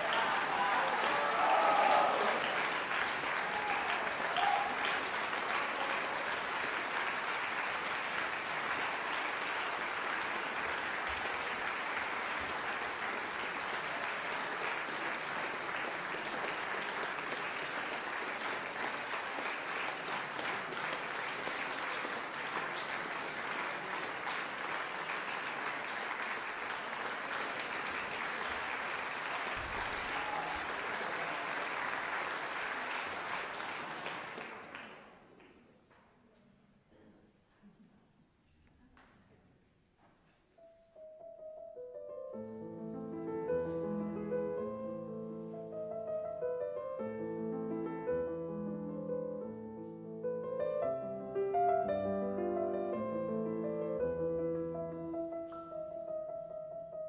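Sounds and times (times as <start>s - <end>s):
audience applauding: 0.0s - 35.7s.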